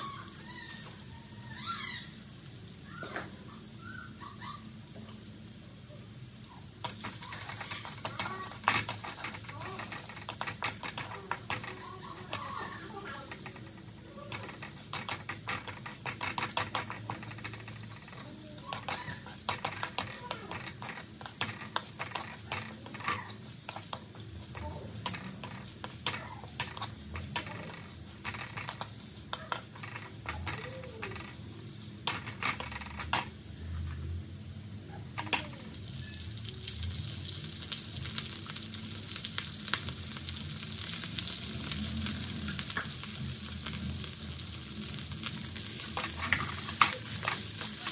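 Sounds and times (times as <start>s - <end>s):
garlic sizzling in oil: 0.0s - 47.9s
rice sizzling in a wok: 0.0s - 47.9s
spatula scraping a metal wok: 6.8s - 31.4s, 45.5s - 47.9s.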